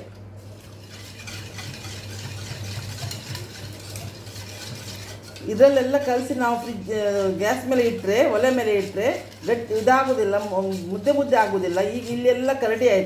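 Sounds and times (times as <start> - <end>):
whisk clinking on steel bowl: 0.0 - 13.0
whisk swishing liquid: 0.0 - 13.0.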